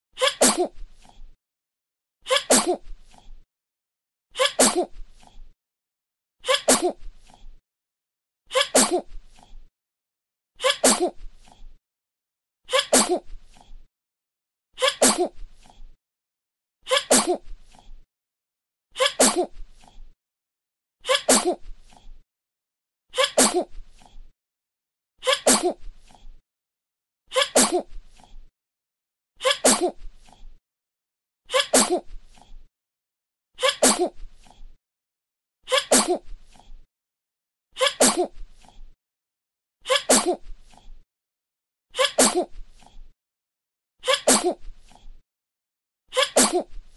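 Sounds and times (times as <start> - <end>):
baby sneezing: 0.2 - 0.8, 2.3 - 2.8, 4.4 - 4.9, 6.5 - 7.0, 8.5 - 9.1, 10.6 - 11.2, 12.7 - 13.3, 14.8 - 15.4, 16.9 - 17.4, 19.0 - 19.5, 21.1 - 21.6, 23.2 - 23.7, 25.2 - 25.8, 27.3 - 27.9, 29.4 - 30.0, 31.5 - 32.1, 33.6 - 34.2, 35.7 - 36.2, 37.8 - 38.3, 39.9 - 40.4, 42.0 - 42.5, 44.0 - 44.6, 46.1 - 46.7.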